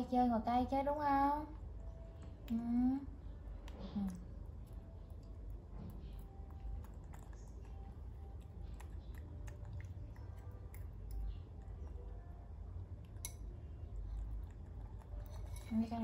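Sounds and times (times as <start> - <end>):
low steady hum: 0.0 - 16.0
monkey chewing and smacking: 3.4 - 12.4, 13.0 - 15.8.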